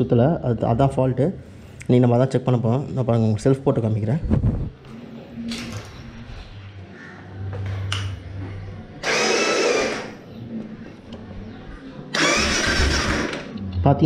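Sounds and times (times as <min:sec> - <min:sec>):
starter motor whirring: 0:09.0 - 0:10.2, 0:12.1 - 0:13.5.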